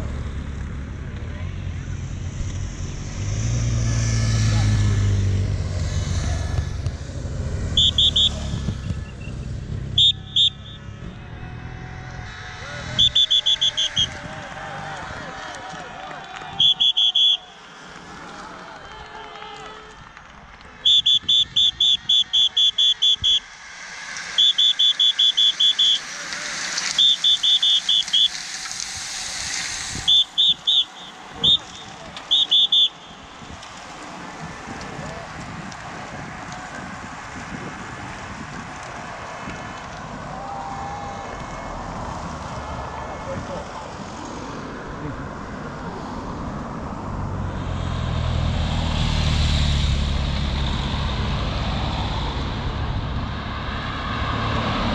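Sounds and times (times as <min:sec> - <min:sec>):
motorcycle engine rumble: 0:00.0 - 0:17.8, 0:19.9 - 0:54.9
bicycles whirring past: 0:00.0 - 0:54.9
whistle blasts: 0:07.6 - 0:11.0, 0:12.2 - 0:14.4, 0:16.4 - 0:17.7, 0:20.8 - 0:33.7.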